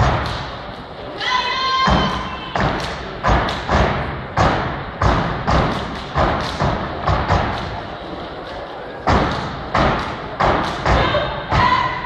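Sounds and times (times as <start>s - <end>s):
hand claps: 5.6s - 6.8s, 9.2s - 10.8s.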